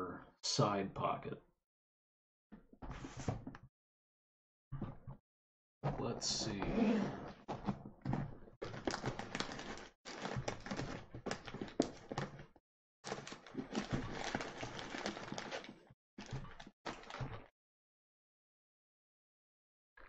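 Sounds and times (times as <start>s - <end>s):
leather creaking and rubbing: 5.9s - 12.3s
zipper rasping: 6.4s - 7.8s.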